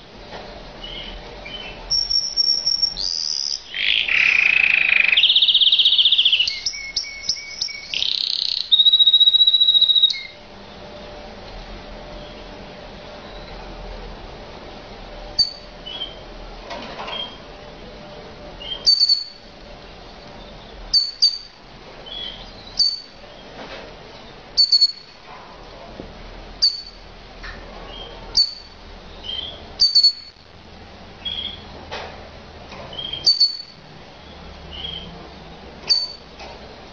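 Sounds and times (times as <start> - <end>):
canary high call notes: 0.8 - 10.4, 18.6 - 19.5, 20.9 - 23.2, 24.6 - 25.1, 26.6 - 27.0, 27.9 - 30.3, 33.0 - 35.2, 35.9 - 36.2.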